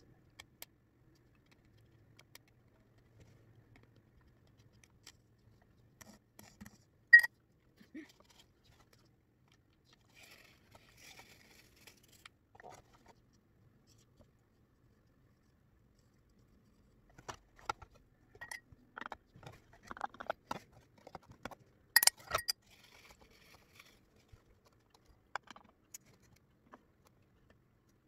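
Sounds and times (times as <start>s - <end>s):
soft plastic clicks: 0.2s - 6.8s.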